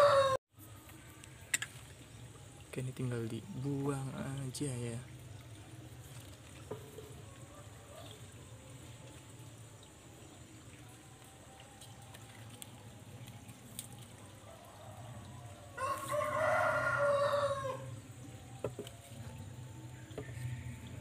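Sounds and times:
rooster crowing: 0.0 - 0.4, 14.4 - 18.0, 19.9 - 21.0.

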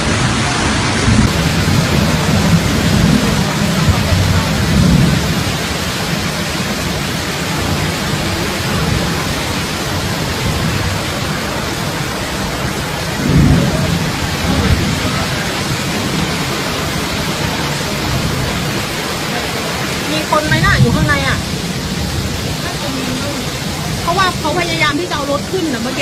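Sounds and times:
floodwater rushing: 0.0 - 26.0
low rumble: 12.6 - 18.9.

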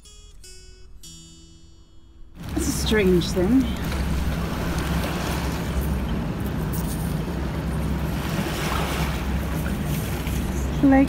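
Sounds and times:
lapping water: 2.4 - 11.0
low engine drone: 2.4 - 11.0.

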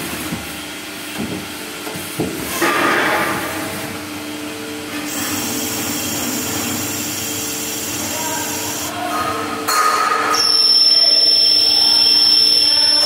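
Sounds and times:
coolant rushing: 0.0 - 9.7
high spindle whine: 4.9 - 8.9, 10.3 - 13.0
lathe machining metal: 4.9 - 8.9, 9.7 - 13.0.

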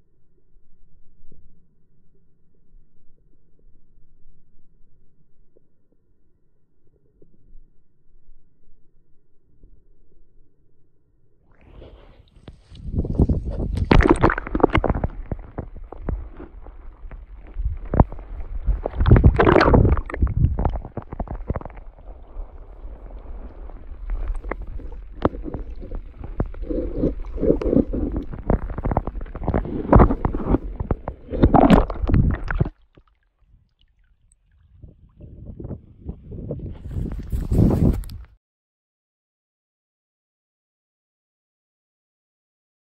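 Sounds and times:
muffled water sloshing underwater: 11.5 - 38.3.

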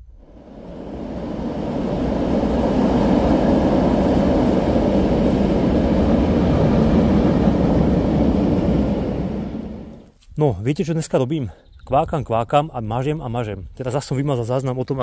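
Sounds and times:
vehicle rumbling over bridge: 0.1 - 10.0.

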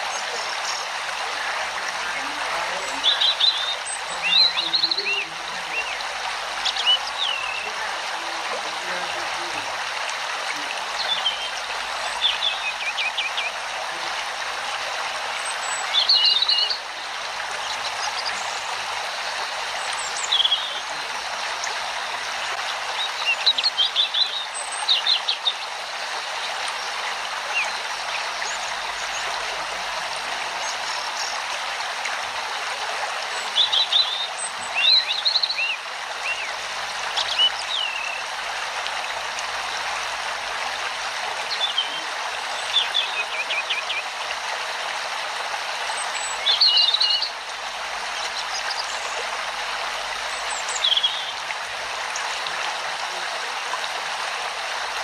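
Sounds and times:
small birds chirping: 0.0 - 9.7, 10.5 - 14.1, 15.4 - 16.9, 33.3 - 38.3
flowing stream water: 0.0 - 55.0.

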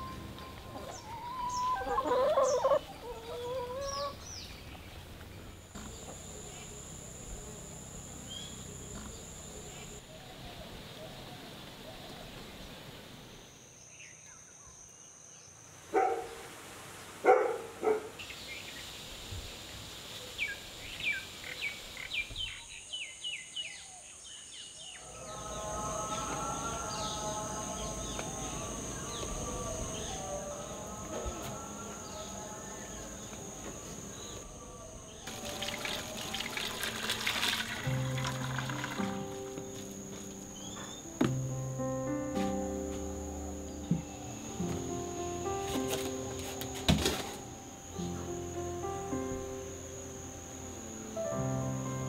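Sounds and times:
birds calling: 0.0 - 12.6
outdoor ambience: 0.0 - 52.0
liquid splashing in a bowl: 35.3 - 39.1.

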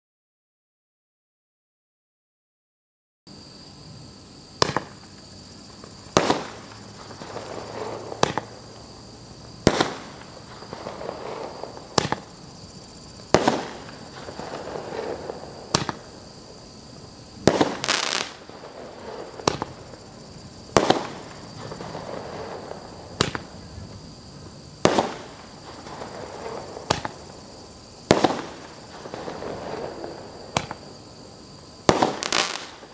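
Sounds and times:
rushing firework noise: 4.5 - 32.9
roman candle pops: 23.2 - 23.5.

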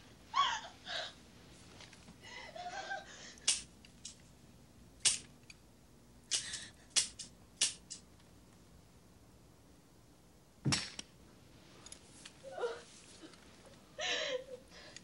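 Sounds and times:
handgun dry-fire clicks: 6.3 - 8.0.

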